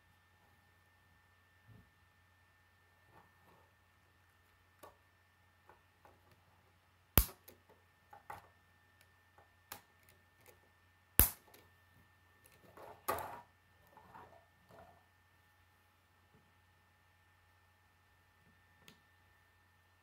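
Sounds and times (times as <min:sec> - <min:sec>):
plastic parts snapping together: 0:07.2 - 0:07.6.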